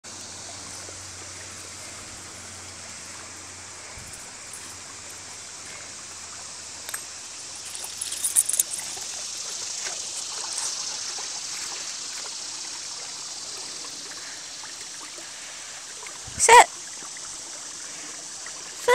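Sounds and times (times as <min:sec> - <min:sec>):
creek trickling: 0:00.0 - 0:18.9
sharp clicks and splashes: 0:06.8 - 0:12.5.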